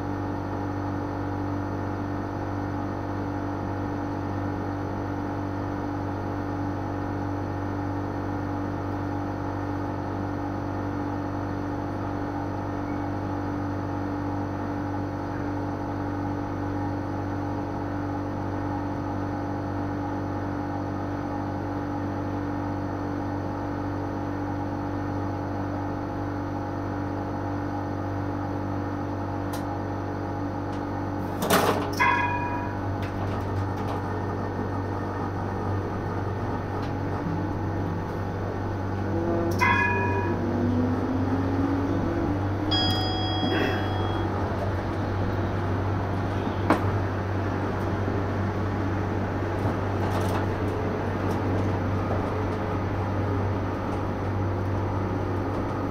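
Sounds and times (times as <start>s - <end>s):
tram electrical hum: 0.0s - 55.9s
tram motor whine: 0.0s - 55.9s
tram bell ding: 32.0s - 32.9s, 39.2s - 41.6s, 42.6s - 44.6s.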